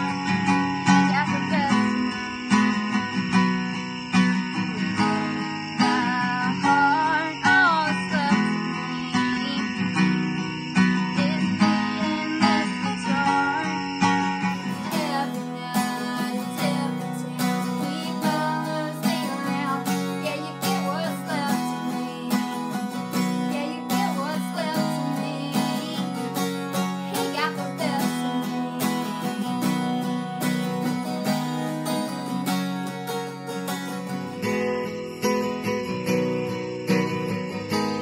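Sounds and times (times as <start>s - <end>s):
acoustic guitar strumming: 0.0s - 38.0s
woman singing: 0.9s - 2.4s, 5.8s - 10.2s, 11.0s - 32.4s.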